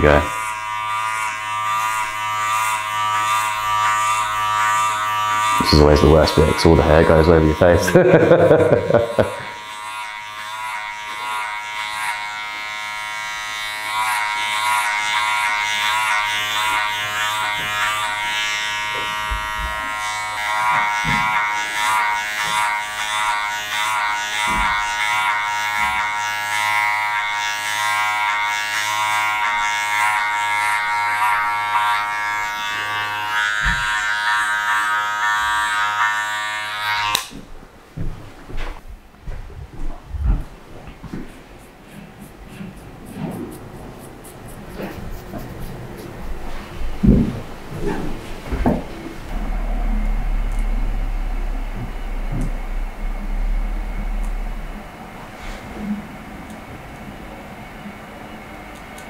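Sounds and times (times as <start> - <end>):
electric hair clippers buzzing: 0.0 - 37.6, 46.2 - 55.3.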